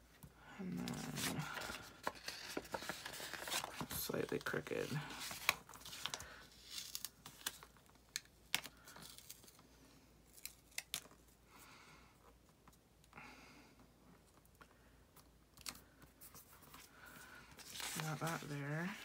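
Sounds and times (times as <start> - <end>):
paper rustling: 0.8 - 7.9, 15.6 - 19.0.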